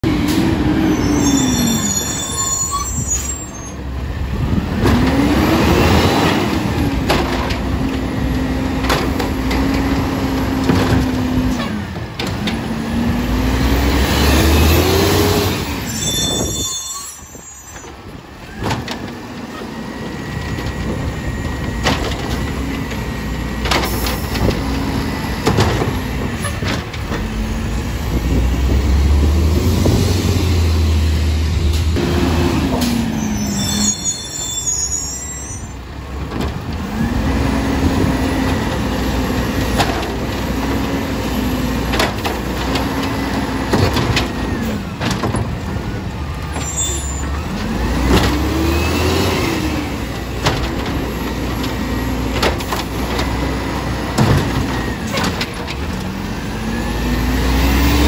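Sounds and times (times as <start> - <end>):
garbage truck diesel engine revving: 3.8 - 15.9, 18.0 - 34.4, 35.8 - 58.0
clanks and knocks of bins: 4.5 - 12.7, 17.7 - 27.6, 36.1 - 48.7, 50.0 - 56.2.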